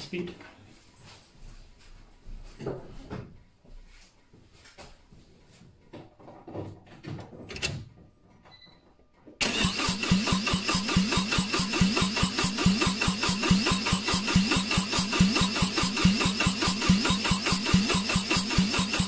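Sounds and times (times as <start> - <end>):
faint knocks and rustles: 0.1 - 9.4
car starter cranking engine: 9.4 - 19.0.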